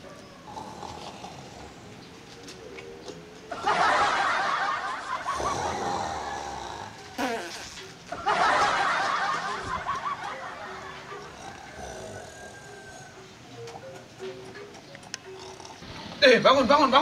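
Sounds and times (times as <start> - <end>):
group of people laughing: 3.5 - 6.6, 8.1 - 11.8.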